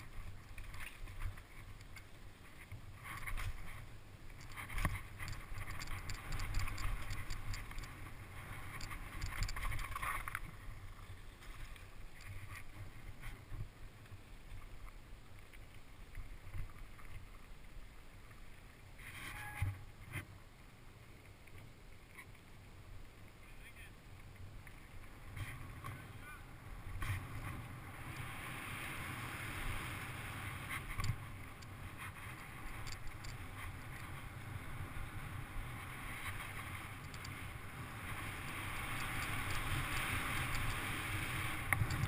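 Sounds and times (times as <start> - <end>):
wind rumble on microphone: 0.0 - 13.8, 24.5 - 42.0
bike rattling over bumps: 3.0 - 10.6.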